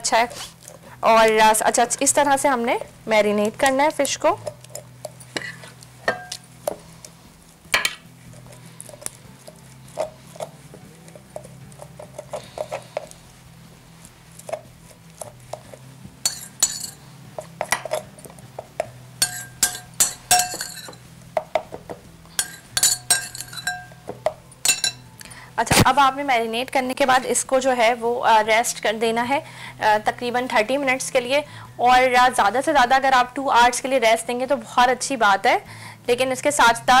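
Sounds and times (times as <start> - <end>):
utensils clinking against glass bowls: 16.2 - 17.0, 19.2 - 21.0, 22.3 - 25.1.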